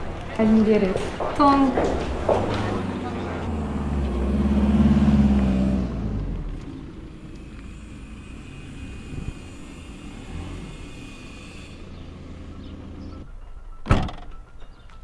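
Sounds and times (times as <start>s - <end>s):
car engine running: 2.3s - 13.2s
loud thump: 13.8s - 14.3s.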